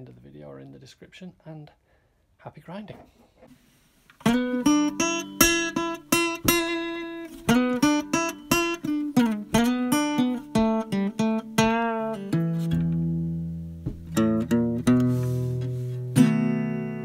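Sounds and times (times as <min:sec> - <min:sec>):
acoustic guitar plucked notes: 0:04.2 - 0:17.0.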